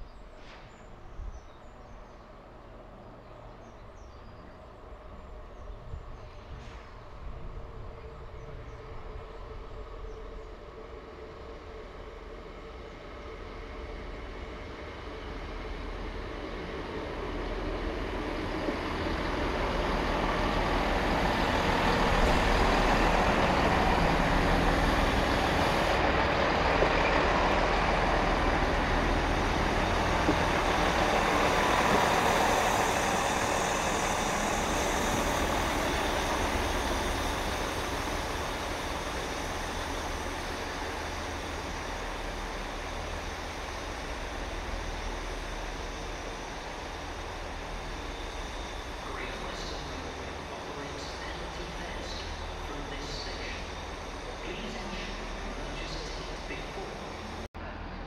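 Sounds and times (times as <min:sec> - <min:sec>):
diesel train engines: 0:00.0 - 0:58.0
train wheels on rails: 0:13.3 - 0:57.9.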